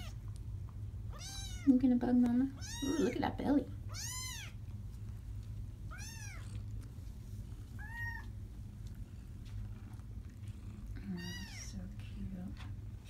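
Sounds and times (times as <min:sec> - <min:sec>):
kittens mewing: 0:01.1 - 0:01.7, 0:02.6 - 0:03.2, 0:03.9 - 0:04.6, 0:05.9 - 0:06.8, 0:07.7 - 0:08.4, 0:10.8 - 0:11.7.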